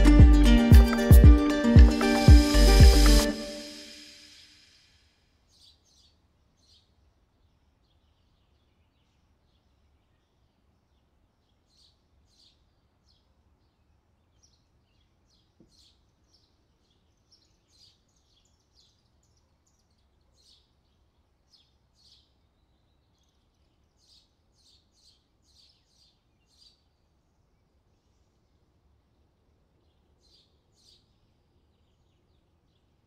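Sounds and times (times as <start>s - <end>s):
faint birdsong chirps: 5.4s - 33.0s.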